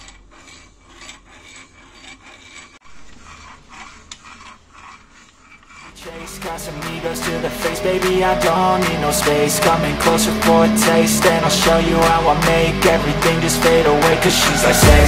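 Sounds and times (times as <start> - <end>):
faint rubbing and scraping: 0.0 - 15.0
music: 6.1 - 15.0.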